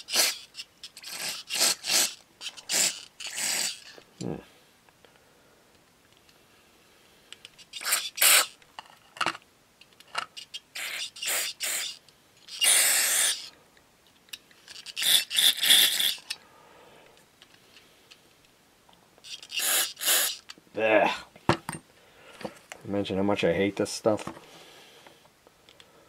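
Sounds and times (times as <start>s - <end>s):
aerosol spray hissing: 10.8s - 11.9s, 12.6s - 13.5s, 19.5s - 20.4s.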